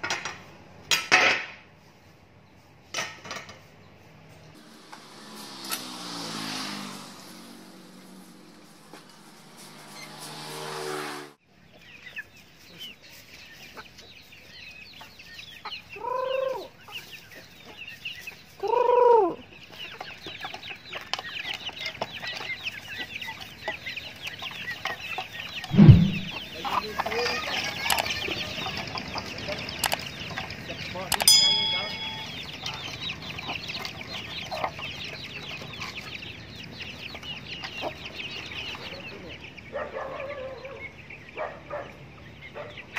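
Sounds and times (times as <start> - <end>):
chicks peeping: 11.5 - 42.9
loud thump: 25.7 - 26.4.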